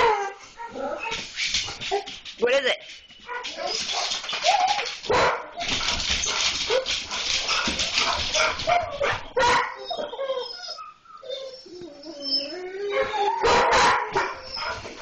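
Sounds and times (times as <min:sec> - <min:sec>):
dogs barking and yipping: 0:03.1 - 0:15.0
dogs whining: 0:05.6 - 0:15.0.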